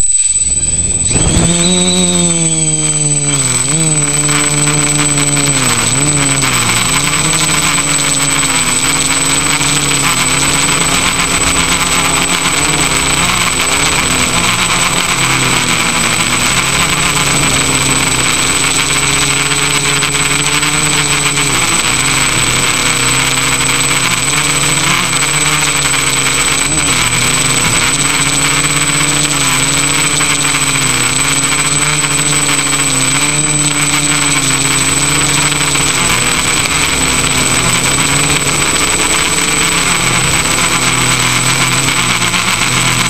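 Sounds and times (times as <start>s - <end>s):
drone motors buzzing: 0.0s - 43.0s
high-pitched whine: 0.0s - 43.0s.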